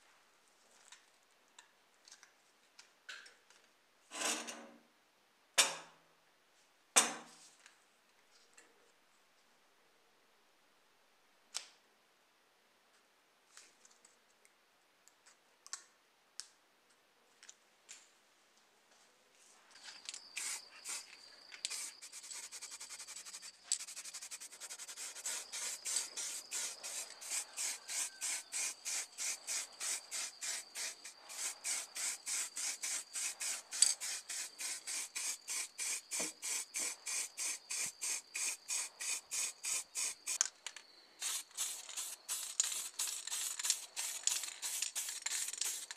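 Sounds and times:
faint nozzle whistle: 20.3 - 40.4
spray paint hissing: 20.3 - 40.4, 41.2 - 45.9.

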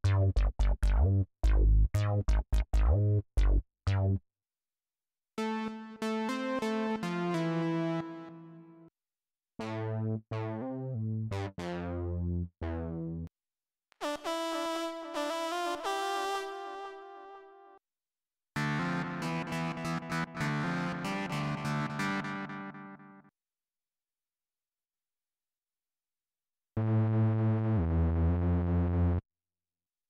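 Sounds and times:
staccato synth bass line: 0.0 - 4.2.

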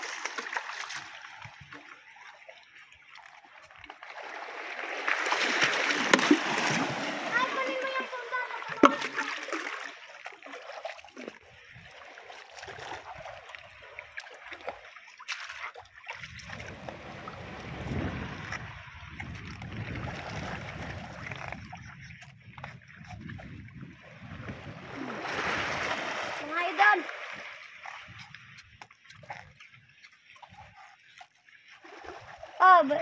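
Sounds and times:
water lapping among rocks: 0.0 - 33.0.

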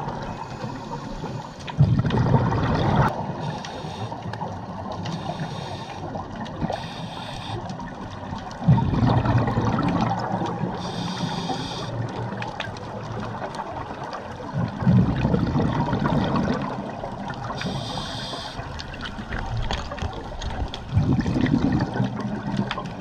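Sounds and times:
diver exhaling bubbles: 1.8 - 3.2, 8.6 - 11.1, 14.5 - 18.7, 20.9 - 22.7
hissing regulator breaths: 3.4 - 4.3, 5.1 - 6.1, 6.7 - 7.7, 10.8 - 12.0, 17.6 - 18.6.

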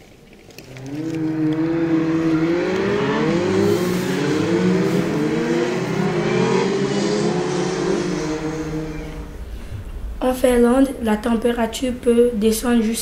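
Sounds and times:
snowmobile engine revving: 0.6 - 10.2.

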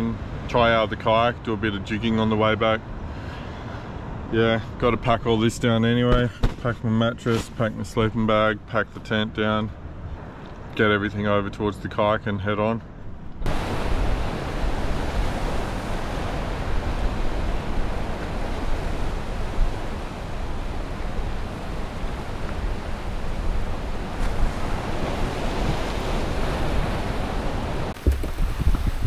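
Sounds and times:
wind buffeting microphone: 12.9 - 29.0
waves washing: 13.4 - 29.0.

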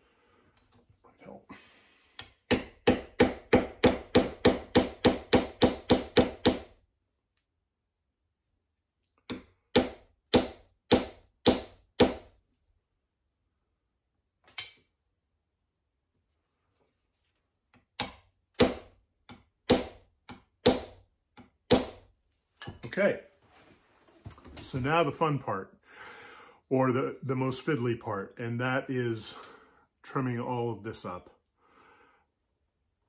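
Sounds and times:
hammer tapping metal wedge: 17.8 - 22.0.

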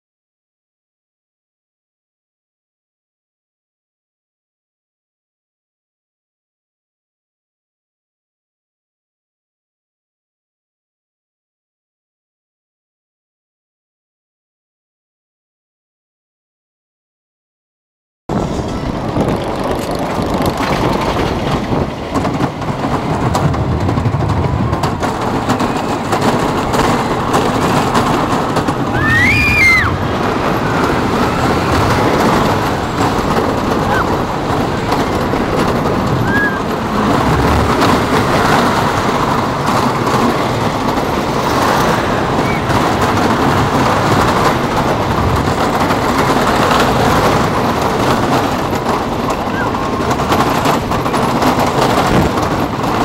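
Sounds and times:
roller coaster rumble and clatter: 18.3 - 53.0.

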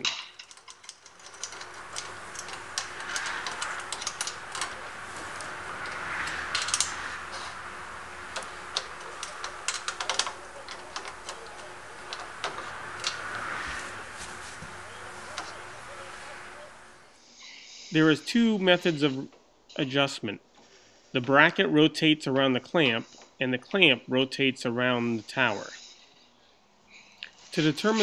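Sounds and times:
soft rubbing: 1.5 - 17.1.

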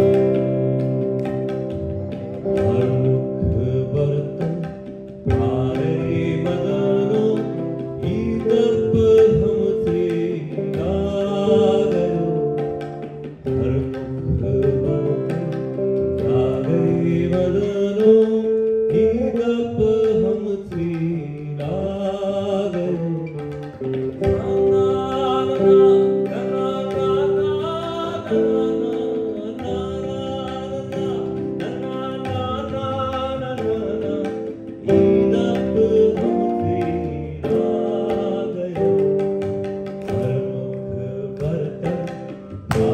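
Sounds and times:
electric guitar: 0.0 - 42.9
man singing into a microphone: 0.0 - 42.9
tabla: 0.0 - 42.9.

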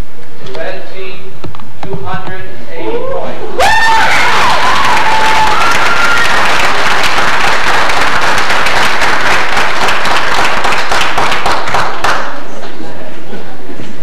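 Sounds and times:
audience applauding: 3.9 - 12.6.

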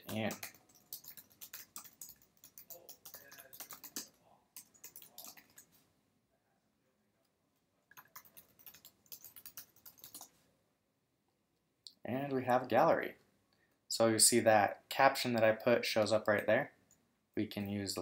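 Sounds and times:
faint keyboard typing: 0.0 - 5.8, 7.9 - 10.4.

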